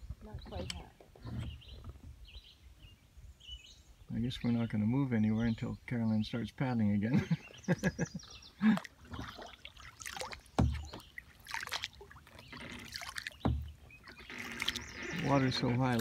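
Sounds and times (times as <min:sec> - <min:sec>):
water trickling off paddles: 0:06.2 - 0:16.0
paddles dipping in water: 0:07.2 - 0:16.0
dull knocks: 0:10.6 - 0:11.1, 0:13.4 - 0:14.2.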